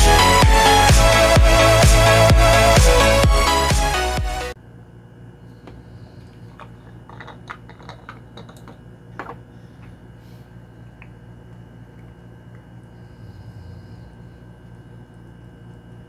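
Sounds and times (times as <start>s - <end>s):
cap tapping on wooden desk: 7.1s - 9.4s.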